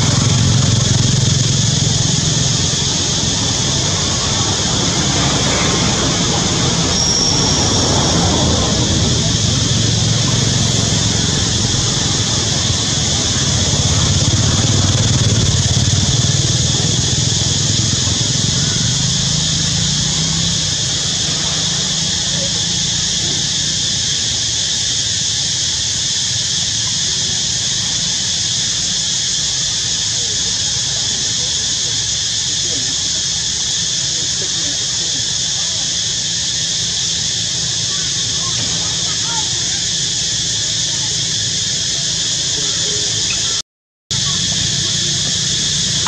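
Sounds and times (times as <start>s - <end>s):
low engine rumble: 0.0s - 24.1s, 37.2s - 46.0s
high-pitched insect drone: 0.0s - 46.0s.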